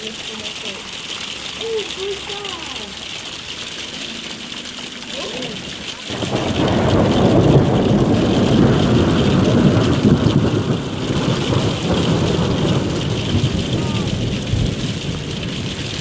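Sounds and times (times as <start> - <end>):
steady rain: 0.0 - 16.0
rolling thunder rumble: 6.1 - 16.0.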